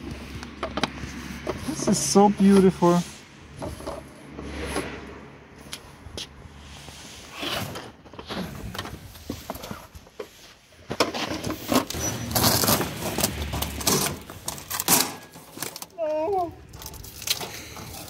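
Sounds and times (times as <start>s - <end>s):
person's voice: 1.6s - 3.2s, 15.9s - 16.6s
cardboard rustling and scraping: 7.0s - 15.8s.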